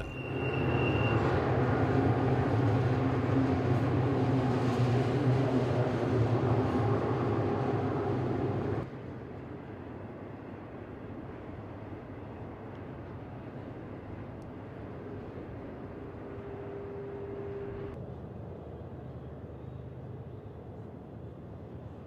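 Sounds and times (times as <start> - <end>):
freight train wheels rumbling: 0.0 - 8.9.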